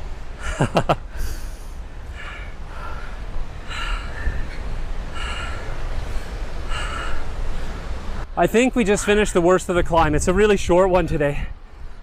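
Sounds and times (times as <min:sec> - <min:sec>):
heavy breathing: 0:00.4 - 0:08.0.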